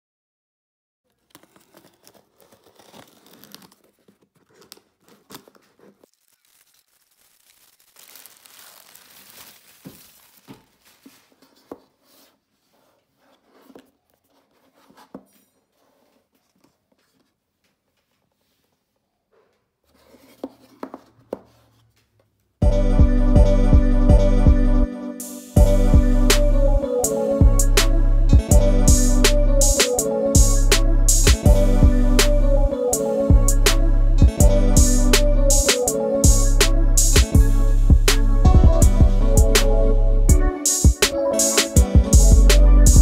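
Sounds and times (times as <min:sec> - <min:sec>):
knife slitting packing tape: 0:01.1 - 0:11.0
cardboard tearing and rustling: 0:01.1 - 0:11.8.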